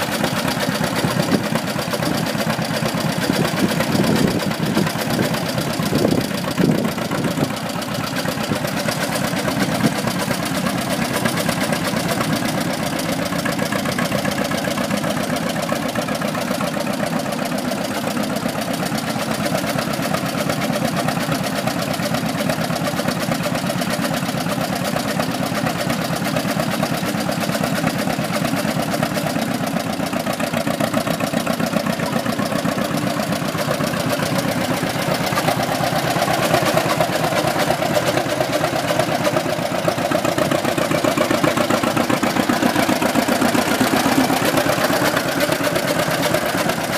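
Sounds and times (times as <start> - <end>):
tractor engine running: 0.0 - 46.9.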